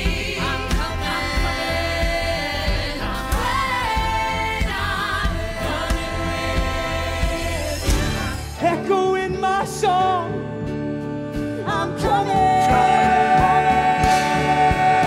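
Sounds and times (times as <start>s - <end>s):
band with pulsing bass beat: 0.0s - 8.6s
chorus singing long notes: 12.0s - 15.0s.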